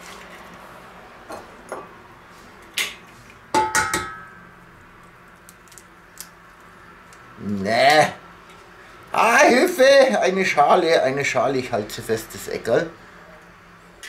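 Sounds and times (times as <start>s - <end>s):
eggs knocking on steel bowl: 3.6s - 4.3s.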